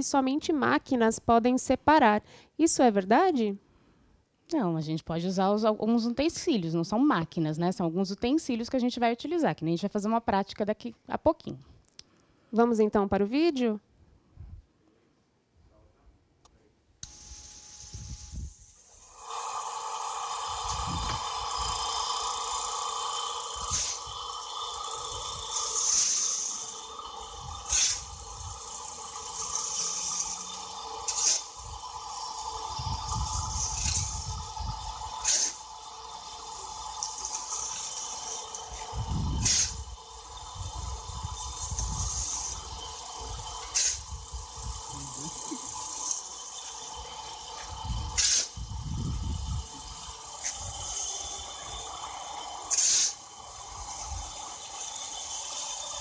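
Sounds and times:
short hiss: 0:17.0 - 0:24.2, 0:25.5 - 0:26.8, 0:27.5 - 0:28.5, 0:29.3 - 0:31.6, 0:32.4 - 0:39.9, 0:43.4 - 0:44.2, 0:44.8 - 0:49.0, 0:49.6 - 0:56.0
motorised sieve hum and rattle: 0:17.1 - 0:56.0.

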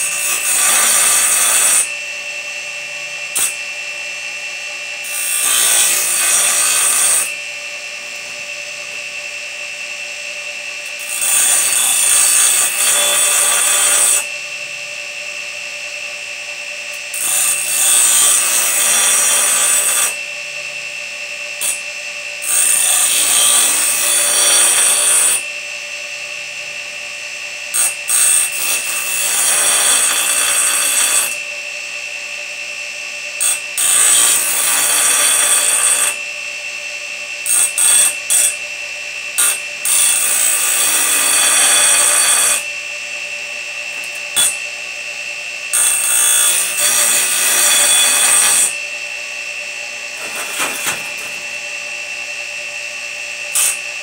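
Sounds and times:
grinding saw blade teeth: 0:00.0 - 0:01.9, 0:03.4 - 0:03.6, 0:05.0 - 0:07.4, 0:10.8 - 0:14.3, 0:16.9 - 0:20.2, 0:21.6 - 0:25.5, 0:27.7 - 0:31.4, 0:33.4 - 0:36.2, 0:39.4 - 0:42.7, 0:43.9 - 0:44.7, 0:45.7 - 0:48.8, 0:50.2 - 0:51.5, 0:53.5 - 0:53.9
bench grinder whining: 0:00.0 - 0:54.0.

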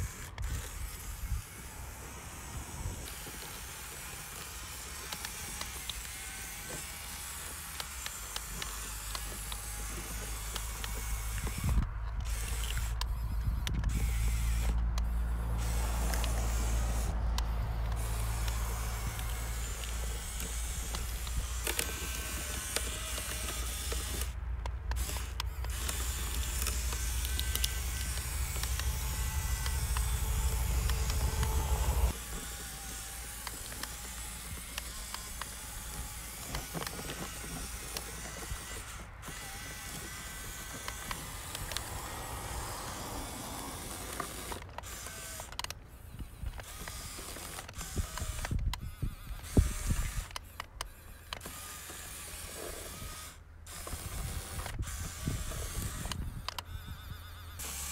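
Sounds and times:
rc car motor whining: 0:00.0 - 0:57.9
creaks: 0:02.3 - 0:57.9
heavy low rumble: 0:25.7 - 0:32.2.

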